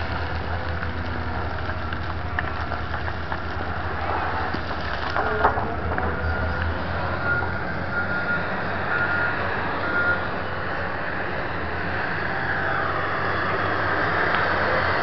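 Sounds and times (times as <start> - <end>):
wheel loader diesel engine: 0.0 - 15.0
reversing alarm beeping: 5.3 - 10.4.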